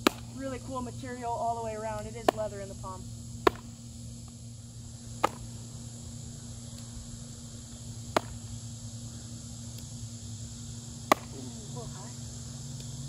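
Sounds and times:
baseball popping into leather glove: 0:00.0 - 0:00.4, 0:03.4 - 0:03.8, 0:05.2 - 0:05.5, 0:08.1 - 0:08.5, 0:11.1 - 0:11.5.

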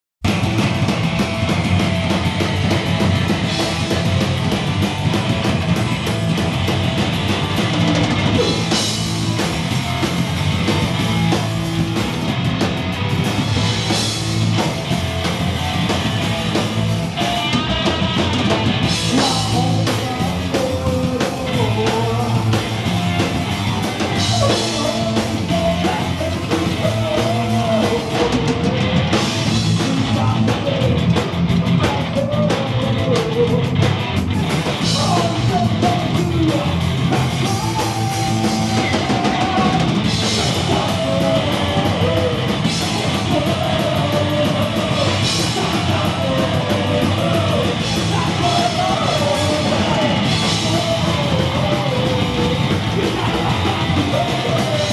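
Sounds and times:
punk rock band playing: 0:00.2 - 0:54.9
person singing: 0:17.2 - 0:22.8, 0:24.1 - 0:33.8, 0:34.8 - 0:54.9.

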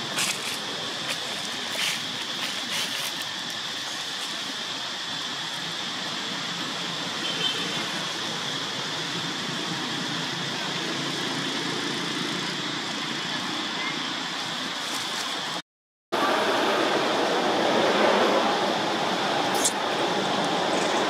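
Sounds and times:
dry leaves crackling: 0:00.0 - 0:04.5, 0:14.8 - 0:15.6
steady outdoor hiss: 0:00.0 - 0:15.6, 0:16.2 - 0:21.0.

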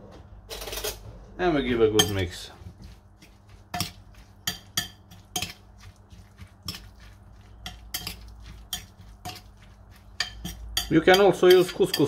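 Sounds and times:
spoon clinking against ceramic bowl: 0:02.0 - 0:02.3, 0:03.7 - 0:05.6, 0:07.6 - 0:12.0.

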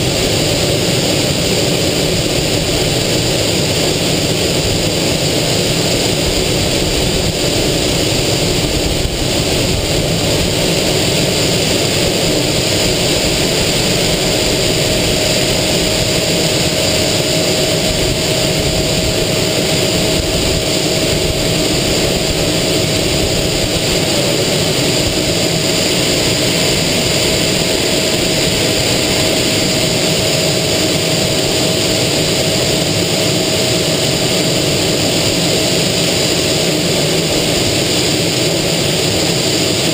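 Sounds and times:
jet engine running: 0:00.0 - 0:39.9
loud rush of air: 0:00.0 - 0:39.9
thin steady whine: 0:00.0 - 0:39.9.

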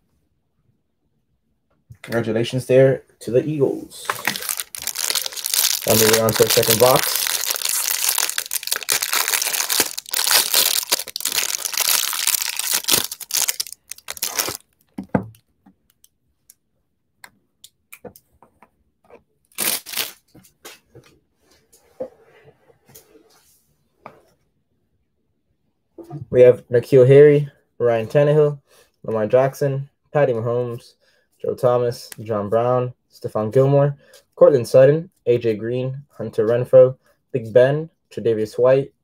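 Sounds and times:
cards clicking and rustling: 0:04.0 - 0:14.6
plastic wrapper crinkling and tearing: 0:04.0 - 0:14.9, 0:19.5 - 0:20.2.

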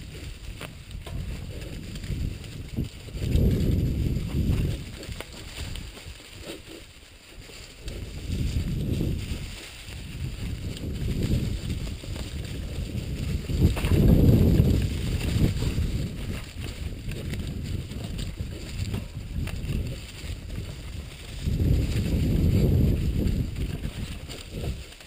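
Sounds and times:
bike tyre and frame rumble: 0:00.0 - 0:25.0
wind buffeting microphone: 0:00.0 - 0:25.0
bike knocks and rattles: 0:10.8 - 0:17.4.

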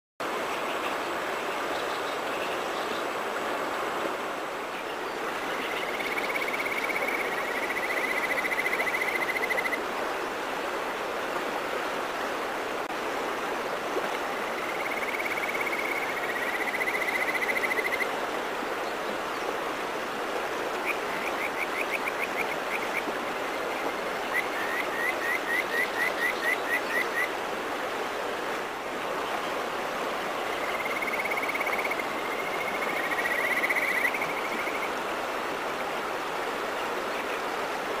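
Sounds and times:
mountain stream rushing: 0:00.2 - 0:38.0
frog calling in whistling phrases: 0:05.9 - 0:09.8, 0:14.6 - 0:18.1, 0:24.3 - 0:27.3, 0:30.8 - 0:34.9.

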